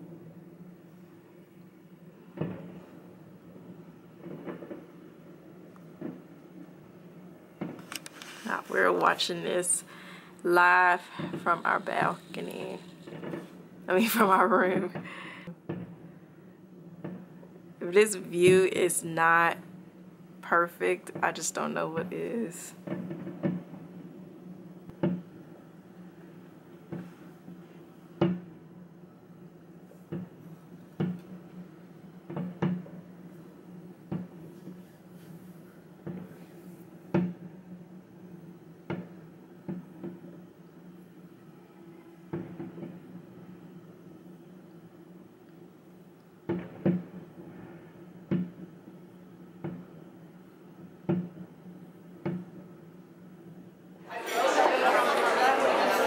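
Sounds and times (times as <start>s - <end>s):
steady low hum: 0.0s - 54.0s
muffled fireworks thumps: 2.3s - 16.2s, 16.8s - 19.5s, 22.7s - 28.7s, 29.7s - 41.3s, 42.3s - 44.1s, 46.3s - 50.2s, 50.8s - 52.8s.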